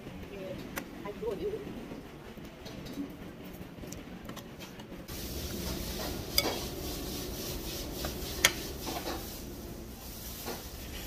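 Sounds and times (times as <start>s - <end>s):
cutlery scraping in a bowl: 5.6s - 6.8s, 8.0s - 9.3s.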